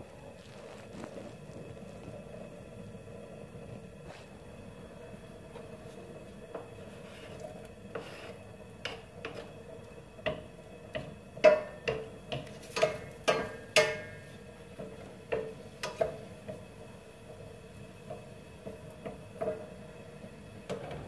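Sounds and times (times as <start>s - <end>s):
wooden spoon scraping metal pan: 6.6s - 9.7s.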